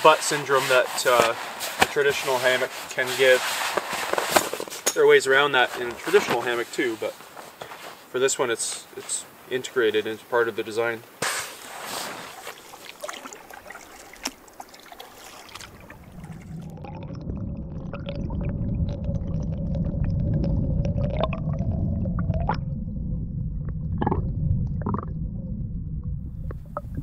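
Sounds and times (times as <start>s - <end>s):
faint rustling: 0.0s - 10.2s, 11.2s - 13.0s
underwater rumble and gurgle: 15.4s - 27.0s.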